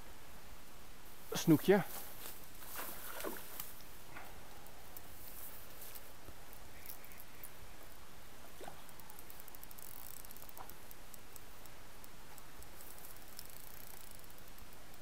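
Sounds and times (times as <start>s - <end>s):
steady hiss: 0.0s - 15.0s
fishing reel ticking: 8.8s - 15.0s.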